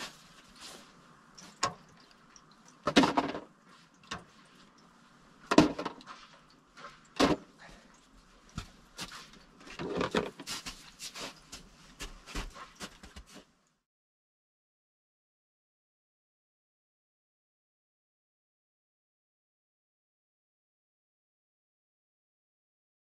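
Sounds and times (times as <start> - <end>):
footsteps crunching in snow: 8.6 - 9.5, 10.3 - 13.5.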